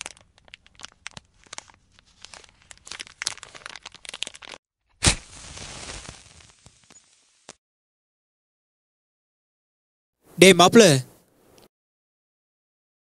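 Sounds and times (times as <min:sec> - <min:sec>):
wrapper crinkling: 0:00.0 - 0:04.6
match strike and hiss: 0:05.0 - 0:07.6.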